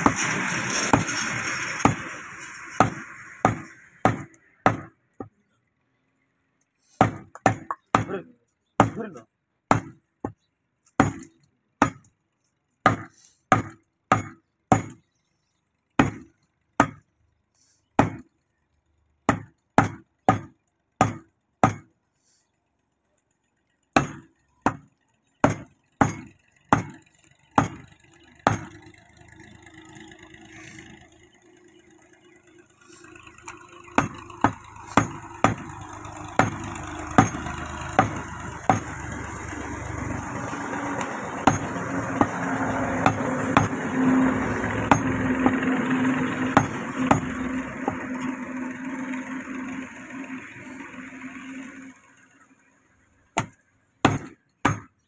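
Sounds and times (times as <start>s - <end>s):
cleaver chopping meat on wood: 2.8s - 5.3s, 7.0s - 8.2s, 8.8s - 9.1s, 9.7s - 10.4s, 11.0s - 12.0s, 12.8s - 15.0s, 16.0s - 17.0s, 18.0s - 18.3s, 19.3s - 21.9s, 24.0s - 27.0s, 27.6s - 27.9s, 28.5s - 28.8s, 34.0s - 35.8s, 36.4s - 39.0s, 41.0s - 43.8s, 46.6s - 47.3s, 53.4s - 54.9s.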